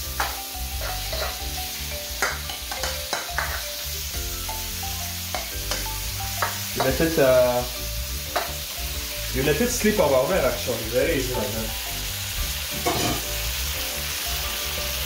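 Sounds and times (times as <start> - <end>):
shrimp sizzling in a wok: 0.0 - 15.0
spatula scraping a pan: 0.2 - 3.8, 12.7 - 13.4.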